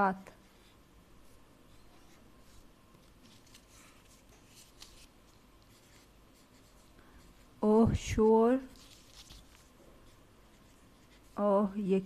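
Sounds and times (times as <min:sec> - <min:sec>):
pen scratching on paper: 0:05.6 - 0:07.5.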